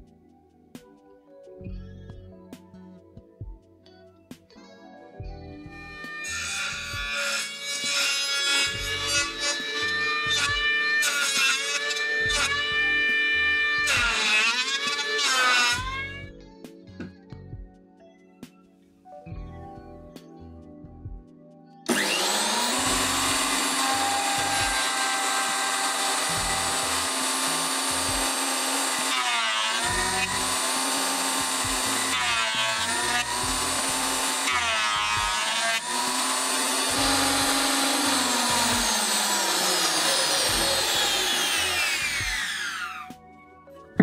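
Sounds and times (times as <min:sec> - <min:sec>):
thickness planer motor whine: 0:05.8 - 0:16.1, 0:21.9 - 0:43.1.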